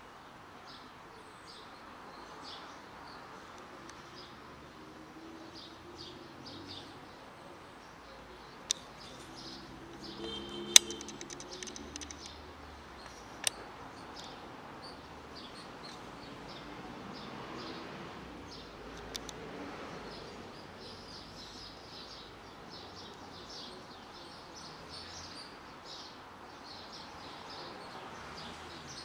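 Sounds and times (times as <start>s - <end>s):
small birds chirping: 0.7s - 29.0s
sharp clicks: 8.7s - 12.4s, 13.0s - 13.6s, 18.9s - 19.4s
rapid ticking: 10.7s - 12.3s.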